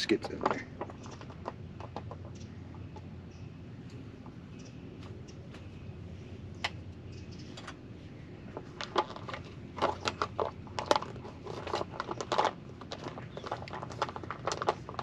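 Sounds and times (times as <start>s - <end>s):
sharp clicks and crackles: 8.5s - 15.0s.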